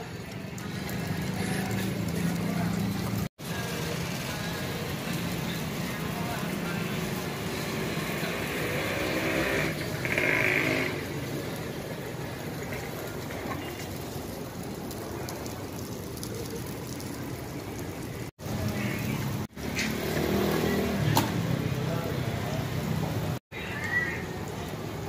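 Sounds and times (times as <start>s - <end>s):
griddle sizzling: 0.0s - 16.5s
low voices: 0.0s - 19.5s
street traffic: 0.0s - 25.0s.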